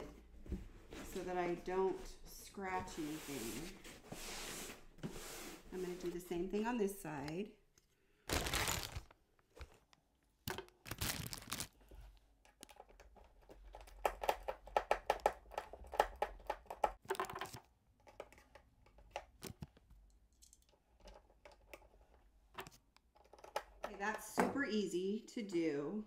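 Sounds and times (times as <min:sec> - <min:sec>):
rubbing and crinkling handling noise: 0:08.2 - 0:14.6.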